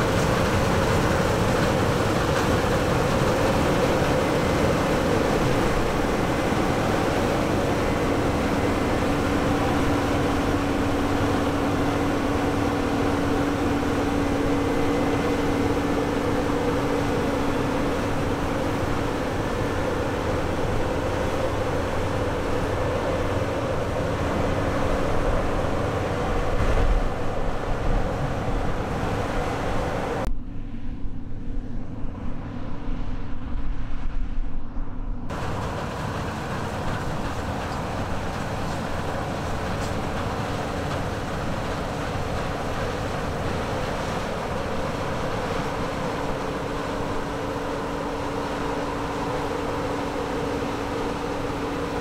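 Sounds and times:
combine harvester droning: 0.0 - 33.5, 35.2 - 52.0.

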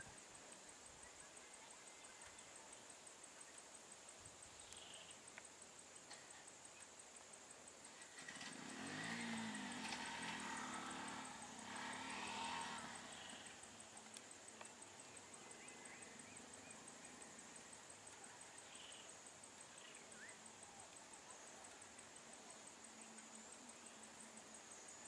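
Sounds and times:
faint chirps: 0.0 - 25.0
high insect drone: 0.0 - 25.0
vehicle engine running low: 7.9 - 18.8.

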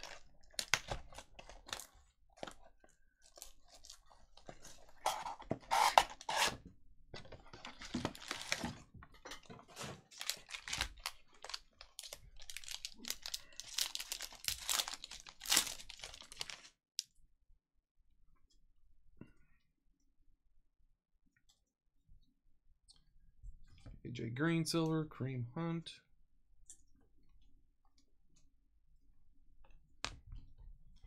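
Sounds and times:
plastic wrapping tearing and crinkling: 0.0 - 2.6, 3.2 - 6.5, 7.5 - 8.8, 9.7 - 16.8.

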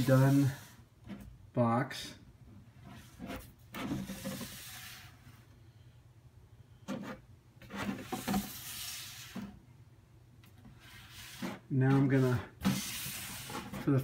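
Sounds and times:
hands scraping cardboard box: 10.8 - 14.0.

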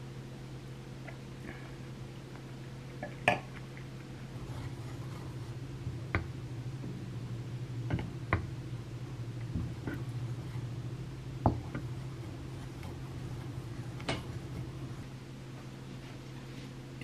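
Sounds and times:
low hum: 0.0 - 17.0
spatula scraping cheese in pot: 11.6 - 15.1.

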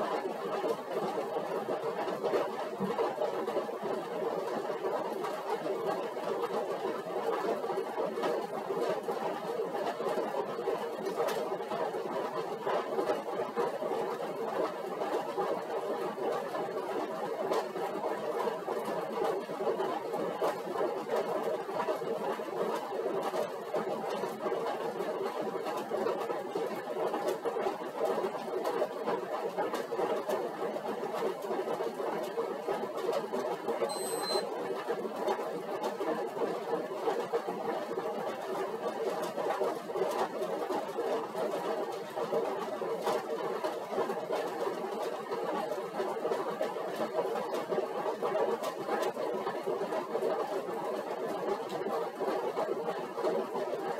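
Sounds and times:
exercise bike whirring: 0.0 - 53.9
short electronic beep: 33.9 - 34.5.

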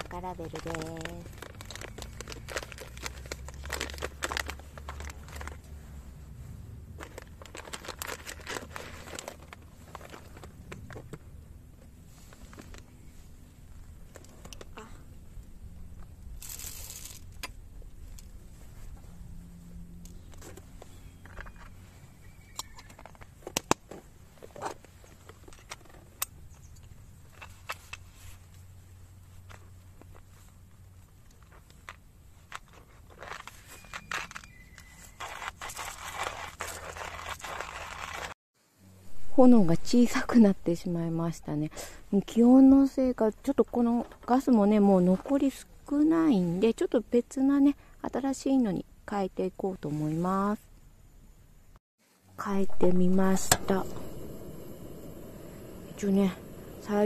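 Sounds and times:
paper bag crinkling: 0.0 - 5.6, 7.0 - 10.7, 16.4 - 17.4, 33.1 - 38.4.

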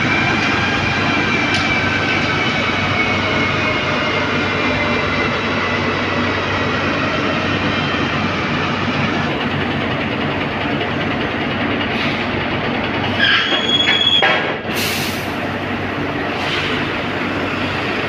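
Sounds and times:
truck tyre spinning on steel rollers: 0.0 - 14.2.

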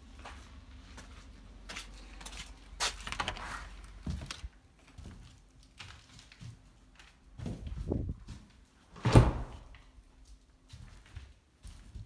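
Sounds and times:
footsteps: 0.0 - 12.0
door low thump: 9.0 - 9.7.

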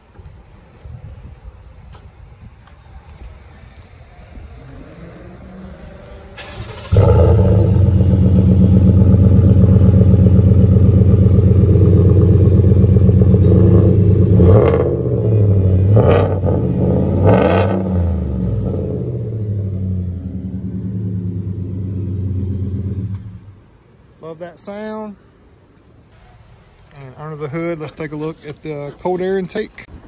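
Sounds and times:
engine revving: 4.7 - 23.6
truck engine starting and running: 5.1 - 23.8.

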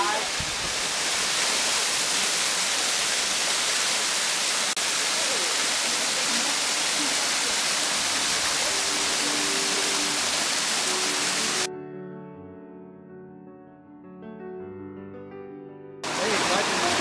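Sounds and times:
small waterfall splashing: 0.0 - 11.7, 16.0 - 17.0.

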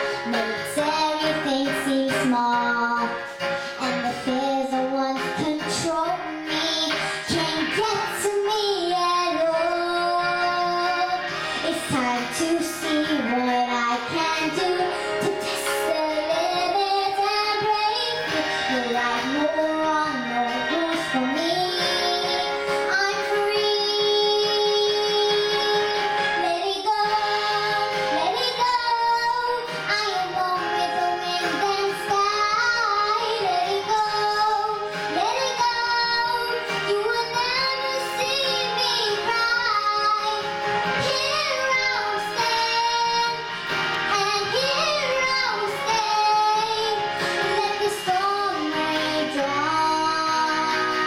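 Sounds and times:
girl singing into microphone: 0.0 - 51.0
instrumental backing track: 0.0 - 51.0.

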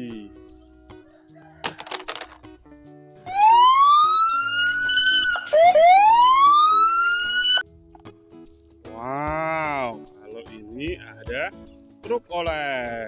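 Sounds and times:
police siren wailing: 3.3 - 7.6.

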